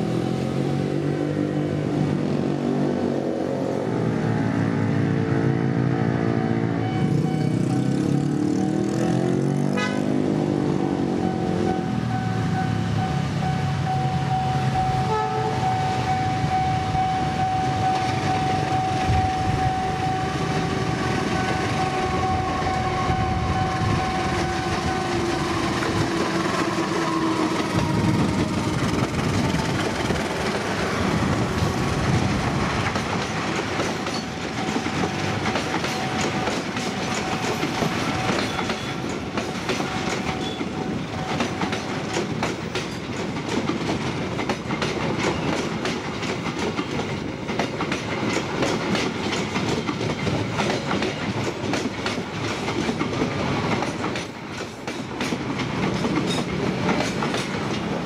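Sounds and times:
locomotive engine: 0:00.0 - 0:43.8
train wheels on rails: 0:00.0 - 0:58.0
steady high tone: 0:11.0 - 0:28.5.

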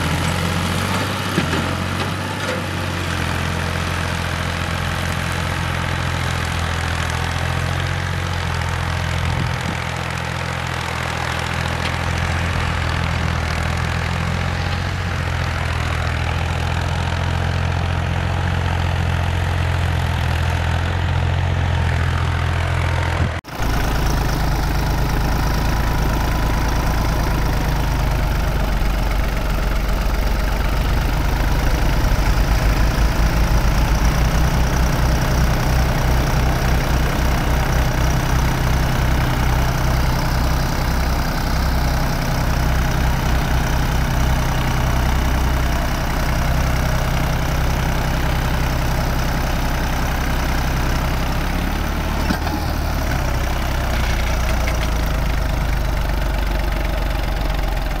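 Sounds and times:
tractor diesel engine under load: 0:00.0 - 0:58.0
engine low pulsing throb: 0:23.2 - 0:45.6.

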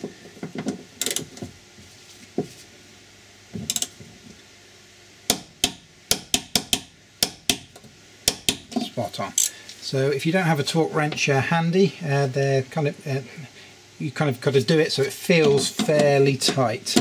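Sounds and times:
torque wrench ratchet clicks: 0:01.0 - 0:01.2, 0:03.7 - 0:03.9.

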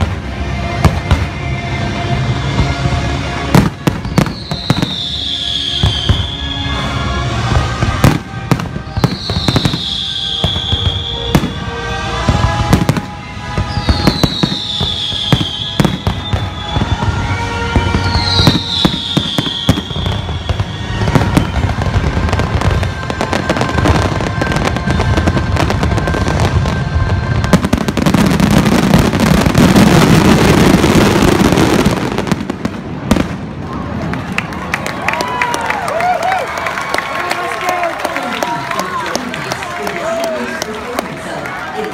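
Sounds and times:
music: 0:00.0 - 0:32.4
fireworks bangs and booms: 0:00.0 - 0:34.3
falling firework whistles: 0:03.8 - 0:06.8, 0:08.0 - 0:11.7, 0:13.6 - 0:32.4.

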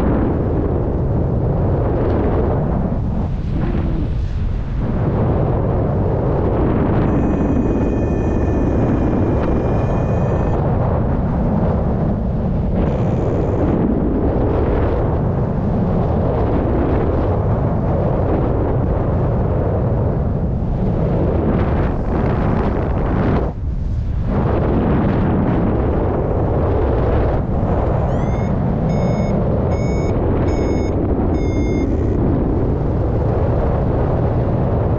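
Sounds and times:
wind buffeting microphone: 0:00.0 - 0:34.9
faint high tone: 0:07.1 - 0:10.6, 0:28.1 - 0:32.2.

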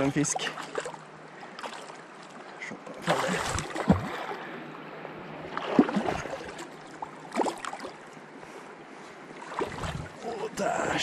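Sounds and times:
short splashes: 0:00.3 - 0:04.5, 0:05.5 - 0:08.0, 0:09.4 - 0:10.5.

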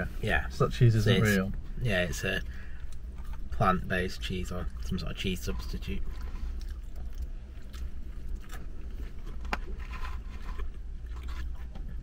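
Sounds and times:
low car cabin hum: 0:00.0 - 0:12.0
chewing: 0:02.7 - 0:03.8, 0:04.6 - 0:12.0.

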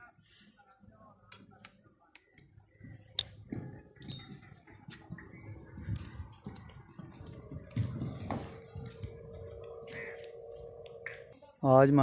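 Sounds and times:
low irregular knocks: 0:02.8 - 0:09.8.

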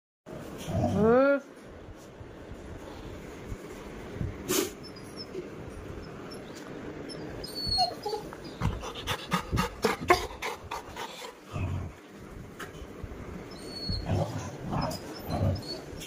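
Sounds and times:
dog whimpering: 0:04.8 - 0:09.0, 0:13.5 - 0:16.0
dog panting: 0:08.4 - 0:11.9.

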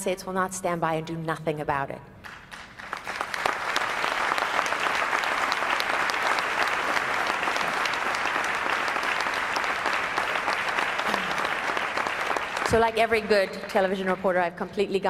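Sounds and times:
audience applauding: 0:02.3 - 0:13.4.

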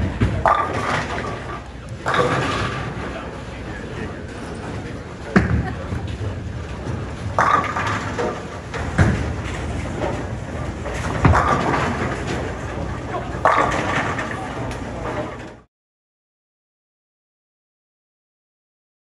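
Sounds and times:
bowling pins crashing: 0:00.0 - 0:03.4, 0:04.4 - 0:15.4
bowling balls rolling on lanes: 0:00.0 - 0:15.7
bowling balls thudding on lanes: 0:00.0 - 0:15.7.

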